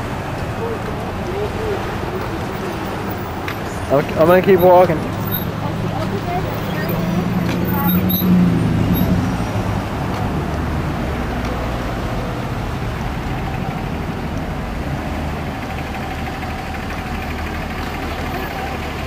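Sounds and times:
road traffic rumble: 0:00.0 - 0:19.0.

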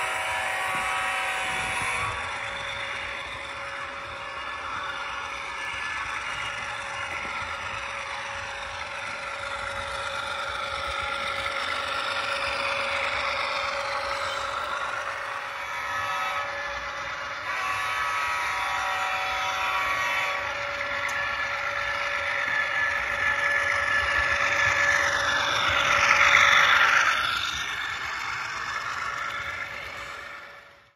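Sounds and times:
diesel engine sound from small speaker: 0:00.0 - 0:30.9.

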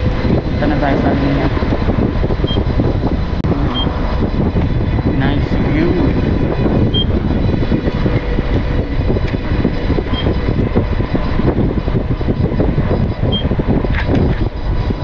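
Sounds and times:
wind buffeting microphone: 0:00.0 - 0:15.0
short high beep: 0:03.7 - 0:04.0.

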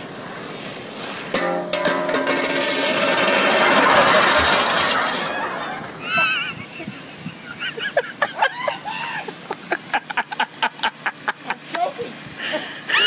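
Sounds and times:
loud rushing noise: 0:00.0 - 0:08.3
high-pitched giggling: 0:06.0 - 0:12.1.

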